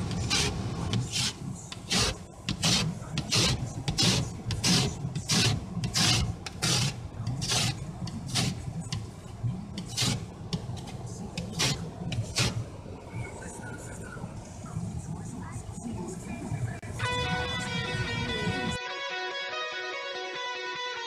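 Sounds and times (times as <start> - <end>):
ice scraper rasping on windshield: 0.1 - 8.7, 9.8 - 12.6.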